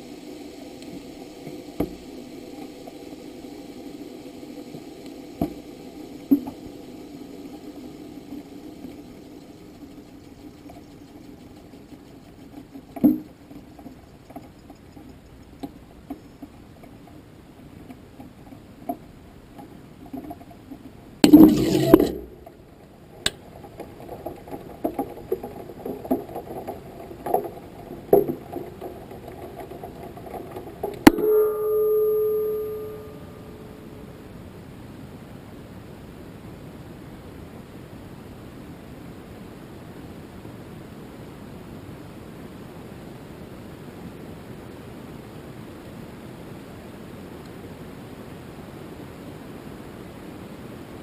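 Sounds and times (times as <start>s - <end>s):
low steady hum: 0.0s - 51.0s
short steady tone: 31.0s - 34.2s.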